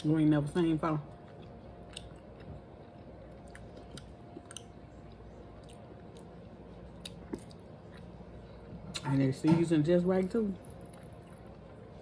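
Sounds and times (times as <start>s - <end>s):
faint chewing: 1.0s - 9.0s, 10.6s - 12.0s.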